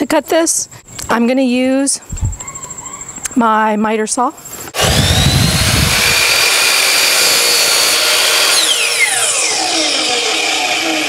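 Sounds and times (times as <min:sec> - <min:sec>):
miter saw whining: 0:04.7 - 0:11.0.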